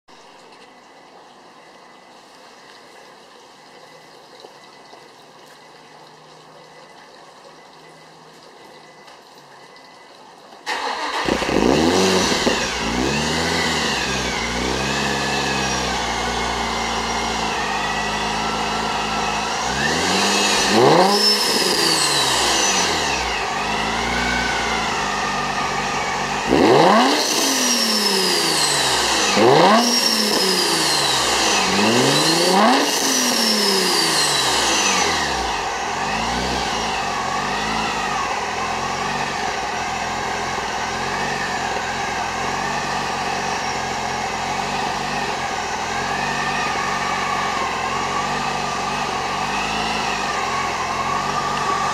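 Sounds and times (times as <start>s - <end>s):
car engine starting and idling: 10.6s - 51.9s
car engine revving: 10.7s - 51.9s.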